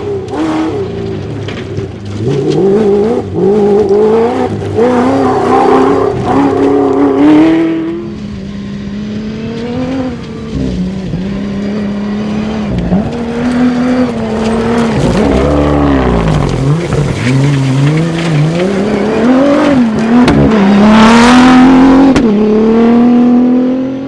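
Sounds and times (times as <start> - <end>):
engine revving hard: 9.0 - 24.0.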